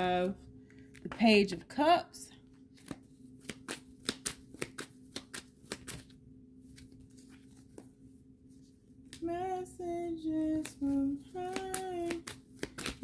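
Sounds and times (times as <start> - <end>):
faint steady hum: 0.0 - 13.0
cards being shuffled: 2.5 - 8.1, 10.4 - 13.0.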